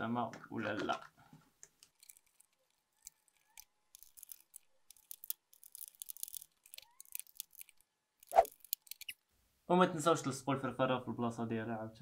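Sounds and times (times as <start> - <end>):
wires rustling and clicking: 0.6 - 9.2.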